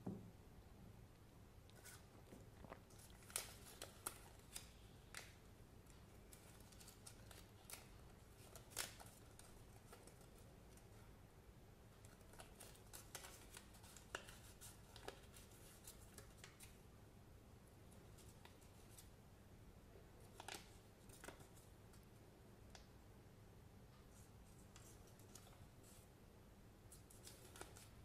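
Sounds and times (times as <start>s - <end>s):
paper sheet crinkling: 2.9s - 10.8s, 12.0s - 16.8s, 20.2s - 22.0s, 24.1s - 26.1s, 26.9s - 28.0s.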